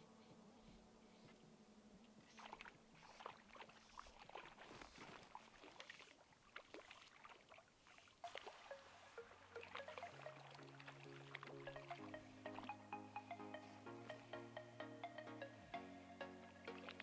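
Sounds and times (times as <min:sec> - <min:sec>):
faint water splashes and trickles: 0:02.0 - 0:12.0.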